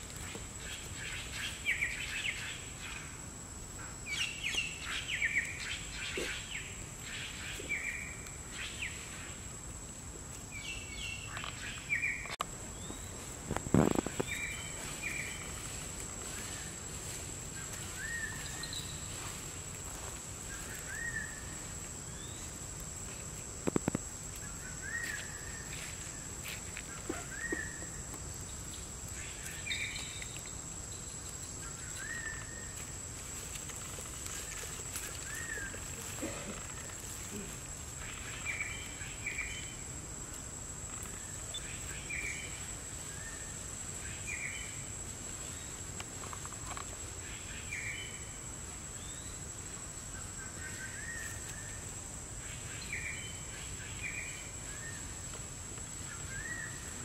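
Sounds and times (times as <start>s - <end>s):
bird chirping: 17.6s - 19.4s, 29.3s - 32.7s.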